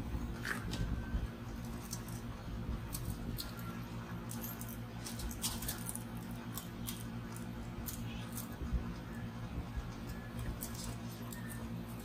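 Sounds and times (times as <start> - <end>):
steady low hum: 0.0 - 12.0
tape clicks and rustles: 1.6 - 9.2.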